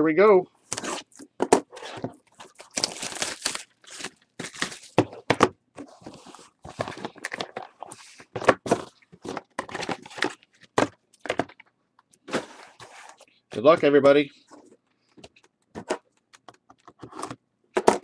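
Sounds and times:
cardboard rustling and scraping: 0.7s - 3.2s, 3.9s - 10.9s, 12.2s - 16.0s.

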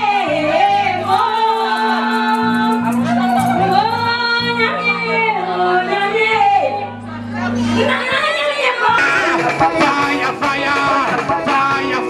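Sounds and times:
women singing gospel: 0.0s - 12.0s
sustained low chords: 9.0s - 12.0s.

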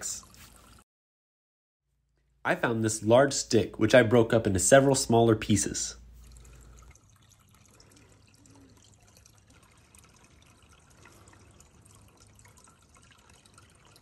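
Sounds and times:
brook trickling and dripping: 0.0s - 0.8s, 5.8s - 14.0s.

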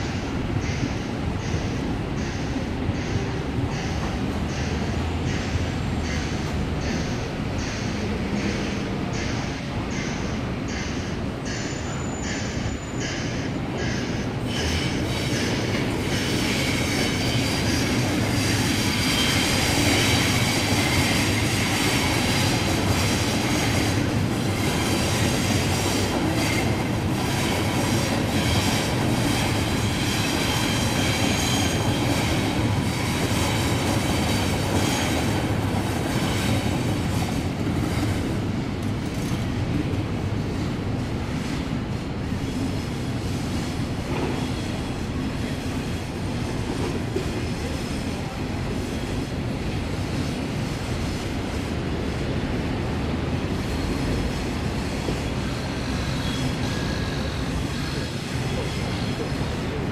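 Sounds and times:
train wheels rumbling on rails: 0.0s - 59.9s
high squeal: 28.3s - 35.4s.

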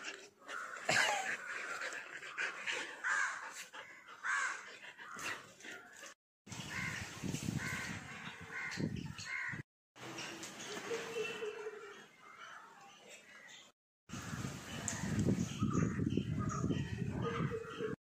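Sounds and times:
crows cawing: 0.4s - 1.8s, 3.0s - 3.6s, 4.2s - 5.9s, 7.6s - 9.6s.

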